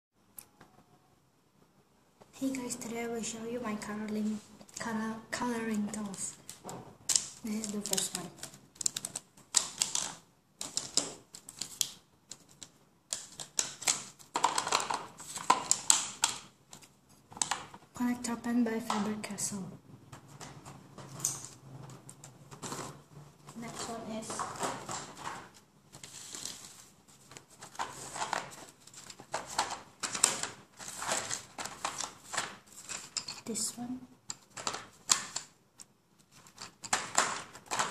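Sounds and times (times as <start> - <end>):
plastic pens clicking together: 6.2 - 17.7, 34.2 - 37.9.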